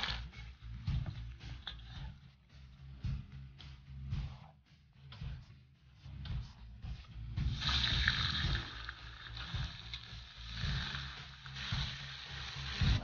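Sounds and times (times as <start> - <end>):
meat sizzling in hot oil: 7.5 - 13.0.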